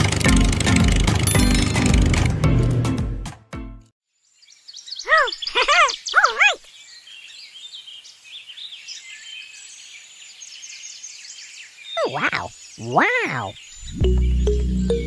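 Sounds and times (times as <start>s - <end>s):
faint high bird chirping: 4.2s - 15.0s.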